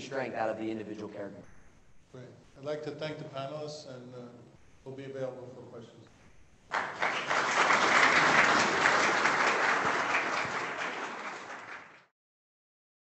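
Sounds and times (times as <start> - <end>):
audience applauding: 6.7 - 12.1.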